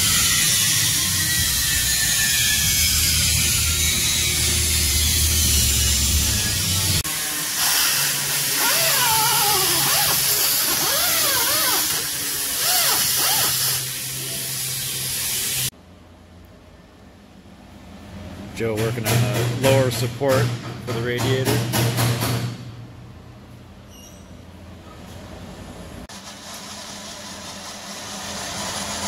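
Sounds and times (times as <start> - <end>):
small power tool whining: 0.0 - 14.3
loud hissing workshop noise: 0.0 - 15.8, 17.8 - 23.2, 23.9 - 29.0.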